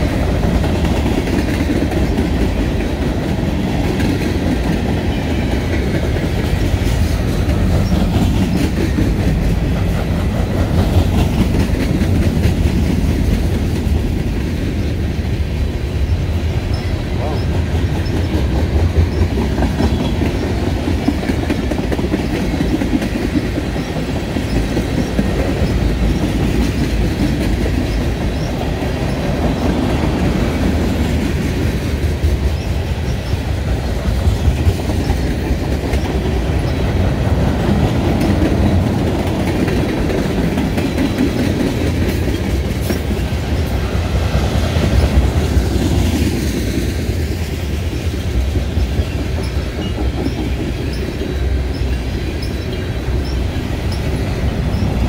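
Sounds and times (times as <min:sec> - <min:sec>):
train wheels rolling on rails: 0:00.0 - 0:55.0.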